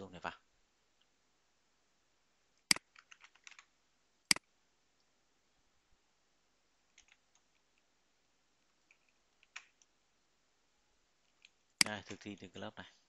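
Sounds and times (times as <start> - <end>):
mouse and keyboard clicks: 6.9 - 7.8, 8.8 - 9.9.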